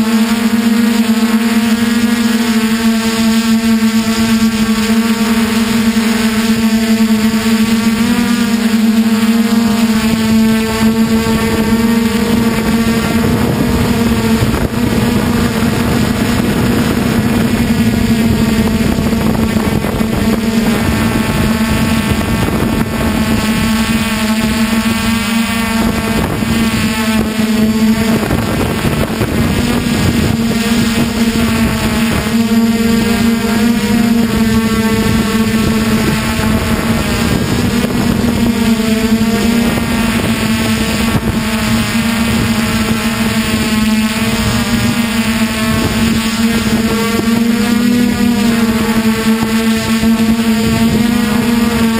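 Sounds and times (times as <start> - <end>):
quadcopter motors buzzing: 0.0 - 51.9
wind noise on microphone: 0.0 - 51.9.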